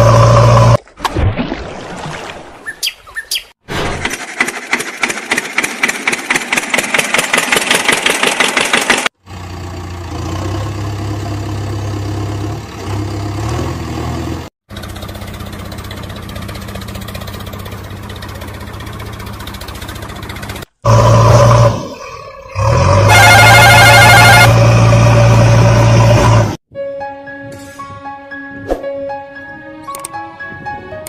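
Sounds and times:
engine firing rapidly: 3.8 - 9.2
engine idling: 4.0 - 13.3, 14.7 - 21.7.

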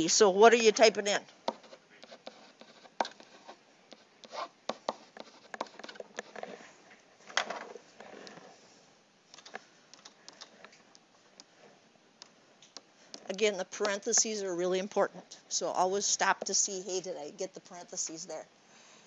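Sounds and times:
pen scratching on tablet: 0.8 - 6.6, 8.0 - 8.6, 13.1 - 14.4.

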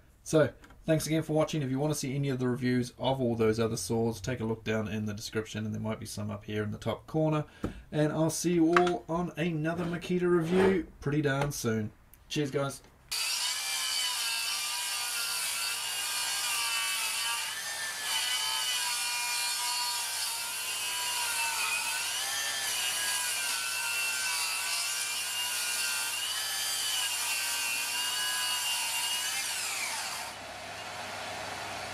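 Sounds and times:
circular saw cutting wood: 13.1 - 31.9
dust extractor vacuum: 29.8 - 31.9.

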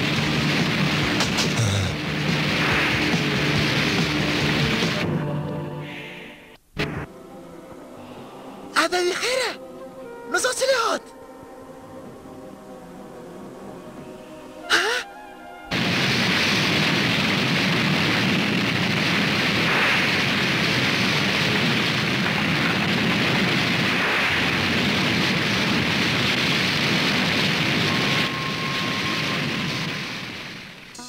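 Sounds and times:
roar of flames: 0.0 - 5.4, 15.7 - 31.0.

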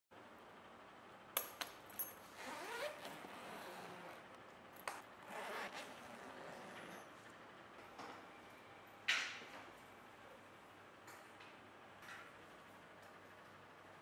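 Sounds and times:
suitcase zipper zipping: 2.4 - 4.2, 5.2 - 7.1.

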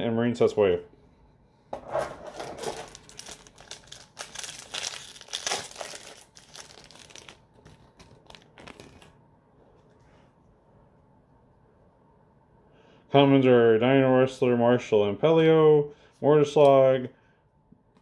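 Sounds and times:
foil pack crinkling: 2.2 - 9.2.

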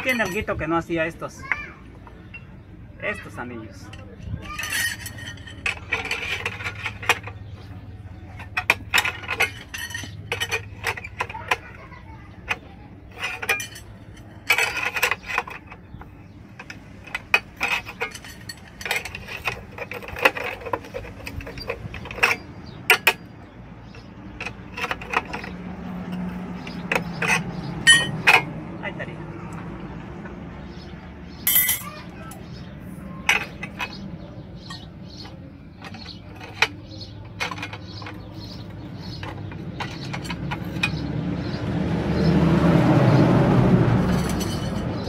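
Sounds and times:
steel rod scraping: 3.8 - 11.8, 12.4 - 28.6, 34.6 - 41.1, 43.9 - 45.0
metallic clicks and knocks: 3.8 - 28.7, 31.4 - 41.6, 43.9 - 45.0.

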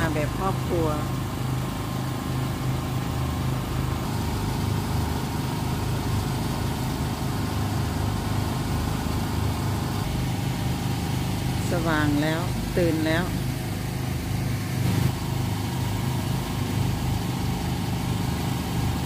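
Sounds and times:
generator engine humming: 0.0 - 19.0.

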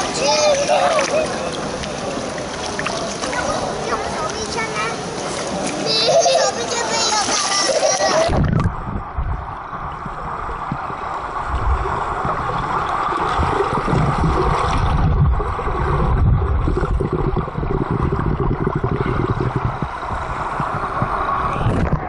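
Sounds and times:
children kicking in water: 0.0 - 8.7
muffled underwater churning: 0.0 - 22.0.

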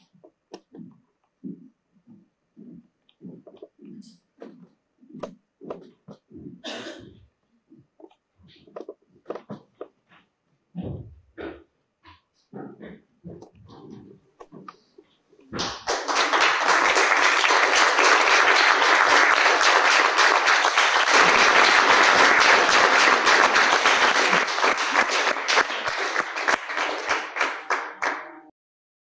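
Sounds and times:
audience applauding: 15.6 - 28.5.

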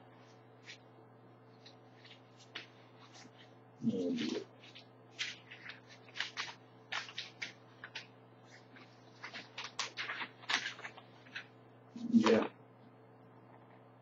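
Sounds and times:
paper rustling and crackling: 1.6 - 11.6.

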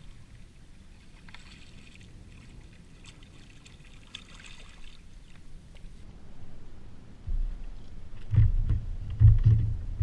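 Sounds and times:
steady low rumble: 5.5 - 10.0.

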